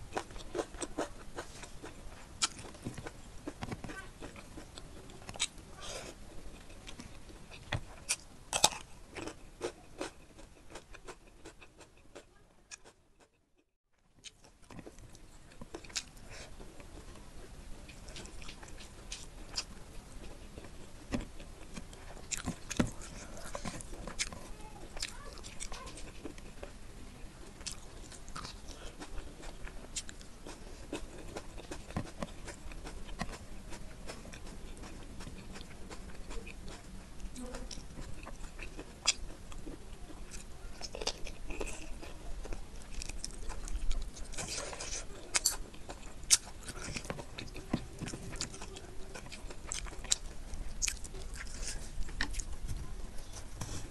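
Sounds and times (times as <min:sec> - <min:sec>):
food crunching: 0:00.0 - 0:13.4, 0:14.2 - 0:26.8, 0:27.4 - 0:53.9
chewing with wet mouth clicks: 0:17.8 - 0:26.6, 0:27.6 - 0:52.6.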